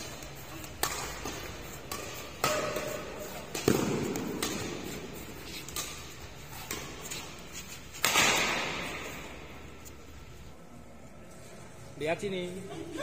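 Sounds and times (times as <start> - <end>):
rackets striking shuttlecock: 0.0 - 9.9.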